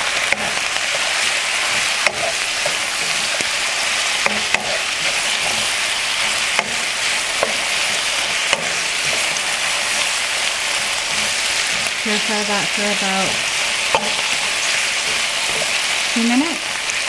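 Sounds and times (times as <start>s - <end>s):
vegetables sizzling in a wok: 0.0s - 17.0s
spatula knocking against pan: 1.7s - 3.5s, 4.2s - 9.6s, 13.8s - 15.8s.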